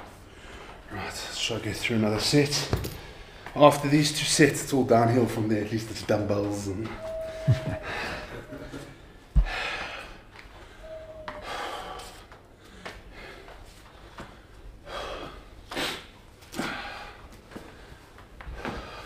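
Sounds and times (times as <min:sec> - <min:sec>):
man breathing hard: 0:07.7 - 0:19.0.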